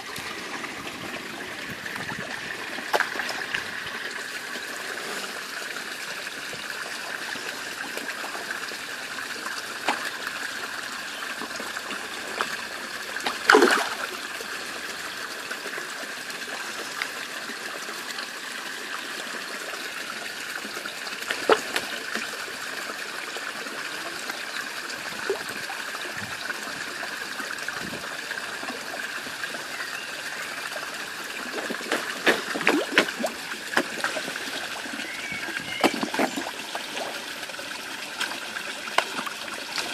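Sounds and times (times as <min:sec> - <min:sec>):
fish splashing and slurping: 0:00.0 - 0:39.9
water trickling into pond: 0:00.0 - 0:39.9
loud splash: 0:13.5 - 0:14.0.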